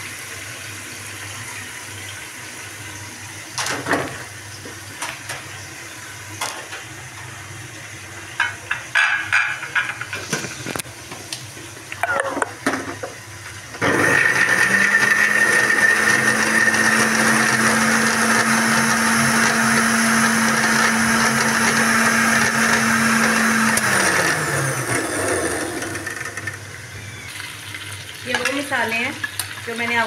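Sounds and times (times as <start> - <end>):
electric blender motor: 13.8 - 27.6.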